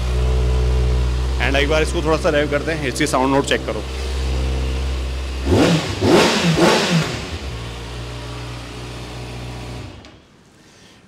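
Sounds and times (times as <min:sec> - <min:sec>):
motorcycle engine idling and revving: 0:00.0 - 0:10.1.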